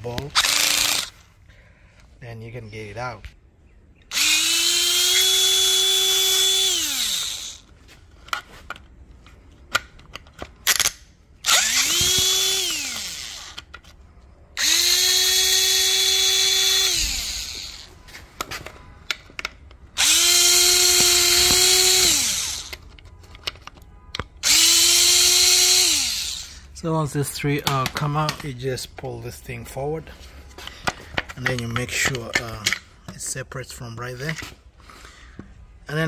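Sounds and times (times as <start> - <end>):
power drill motor whine: 0.4 - 1.2, 4.1 - 7.7, 11.4 - 13.6, 14.6 - 18.0, 20.0 - 22.8, 24.4 - 26.7
clicks of bit and bolts: 8.2 - 14.0, 18.4 - 24.6, 27.6 - 29.1, 30.8 - 33.3.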